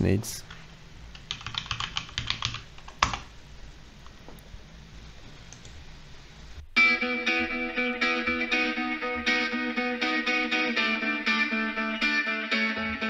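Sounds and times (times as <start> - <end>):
computer keyboard key press: 1.2 - 3.2
guitar music: 6.8 - 13.0.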